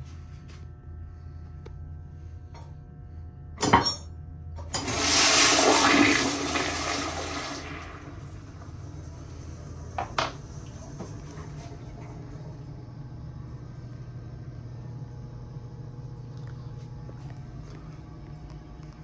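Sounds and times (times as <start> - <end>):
toilet water rushing: 4.7 - 12.4.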